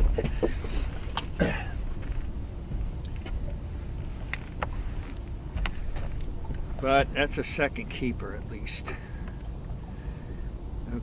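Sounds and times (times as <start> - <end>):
wind rumbling on microphone: 0.0 - 11.0
light clicks and knocks: 4.3 - 7.1.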